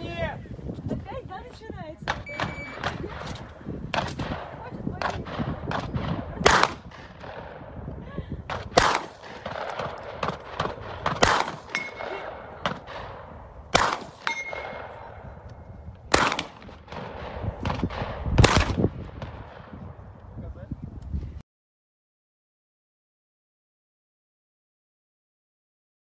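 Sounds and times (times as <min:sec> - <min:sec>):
shotgun shots: 0:02.0 - 0:07.8, 0:08.5 - 0:15.4, 0:16.1 - 0:19.8
short ringing tone: 0:02.3 - 0:02.8.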